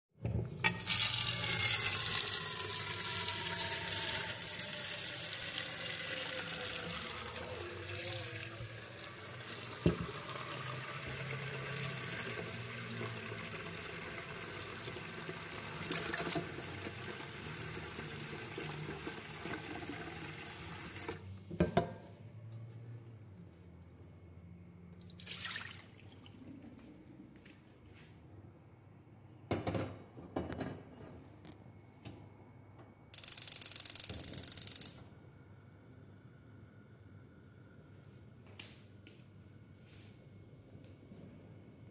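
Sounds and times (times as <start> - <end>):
tap running into metal pot: 9.8 - 10.2.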